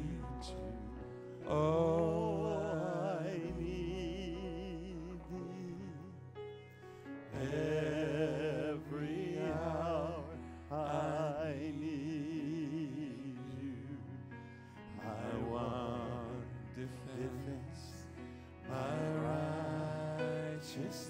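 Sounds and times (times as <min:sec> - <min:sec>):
people singing with vibrato: 0:01.4 - 0:04.7, 0:07.3 - 0:14.3, 0:14.9 - 0:21.0
worship band playing: 0:07.3 - 0:14.0, 0:14.9 - 0:21.0.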